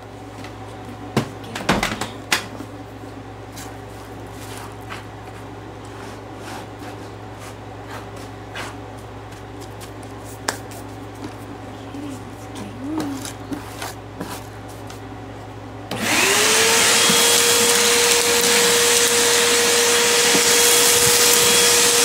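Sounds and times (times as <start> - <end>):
steady low hum: 0.0 - 16.4
hand raking through dust and debris: 16.7 - 22.0.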